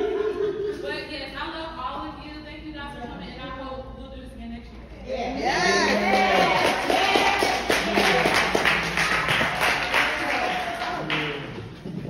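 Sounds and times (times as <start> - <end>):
people clapping: 5.8 - 12.0.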